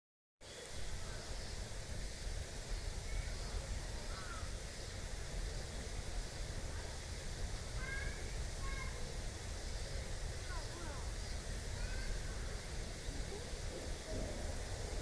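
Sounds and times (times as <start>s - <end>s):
low outdoor rumble: 0.6s - 15.0s
faint bird calls: 3.0s - 4.6s.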